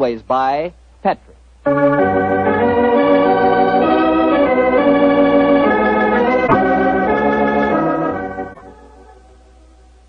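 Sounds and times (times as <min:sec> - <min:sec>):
organ playing held chords: 0:01.6 - 0:09.7.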